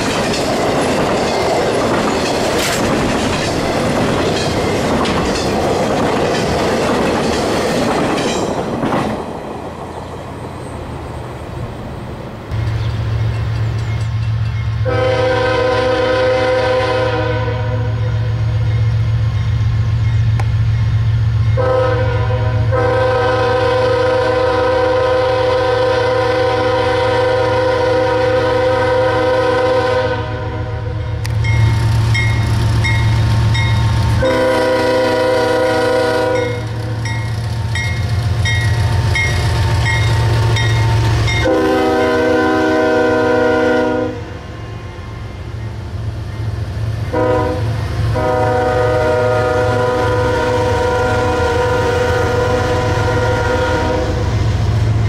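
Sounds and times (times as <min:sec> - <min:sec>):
crossing bell dinging: 0:08.2 - 0:08.8, 0:12.5 - 0:15.0, 0:18.5 - 0:21.7, 0:30.9 - 0:34.3, 0:36.3 - 0:42.3
train air horn blasts: 0:14.8 - 0:18.3, 0:21.6 - 0:31.2, 0:34.2 - 0:37.0, 0:41.3 - 0:44.5, 0:47.1 - 0:54.3.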